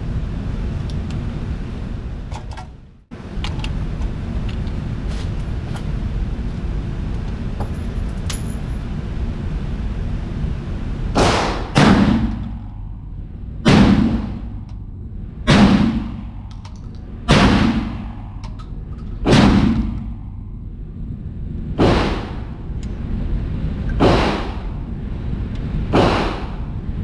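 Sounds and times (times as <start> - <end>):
ventilation hum: 0.0 - 27.0
shotgun shots echoing indoors: 11.1 - 12.7, 13.6 - 14.7, 15.4 - 18.6, 19.2 - 20.4, 21.8 - 22.6, 24.0 - 24.8, 25.9 - 26.8.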